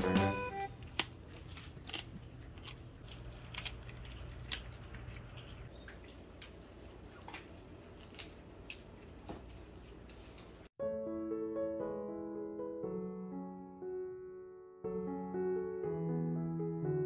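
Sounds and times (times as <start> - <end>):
dogs crunching dry treats: 0.6 - 9.2.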